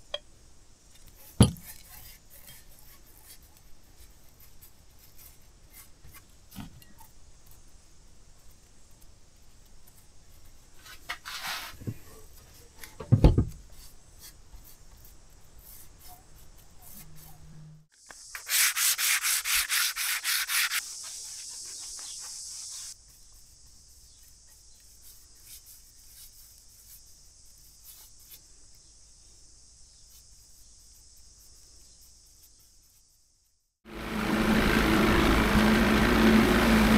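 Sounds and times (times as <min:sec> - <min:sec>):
sanding sponge scrubbing: 0:18.3 - 0:23.0.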